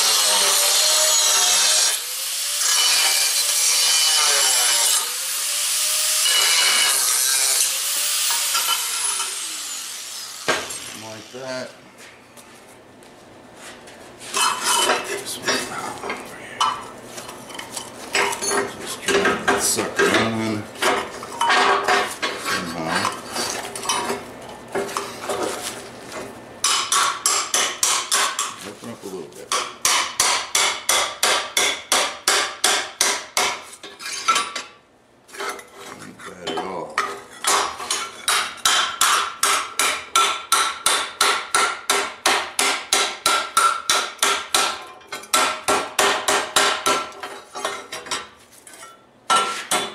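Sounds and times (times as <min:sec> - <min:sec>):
hammer striking sheet steel: 0:26.6 - 0:28.6, 0:29.5 - 0:33.7, 0:37.4 - 0:47.2.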